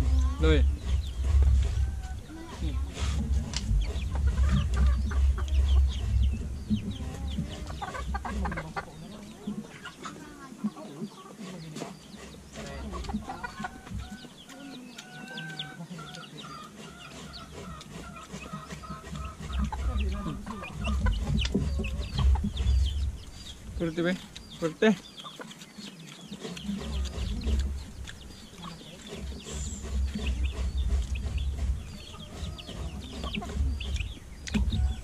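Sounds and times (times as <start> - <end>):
low rumble: 0.0 - 10.0, 17.2 - 24.6, 26.7 - 35.0
chickens clucking: 0.0 - 35.0.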